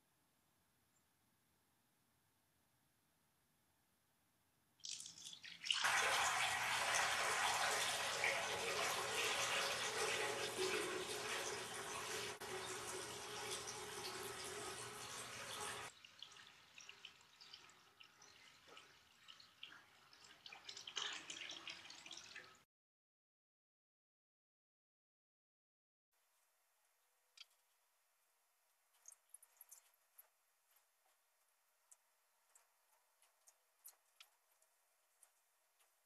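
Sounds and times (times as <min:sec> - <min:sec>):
water pouring into basin: 0:04.8 - 0:22.6
water trickling and splashing: 0:04.8 - 0:22.6, 0:28.9 - 0:36.0.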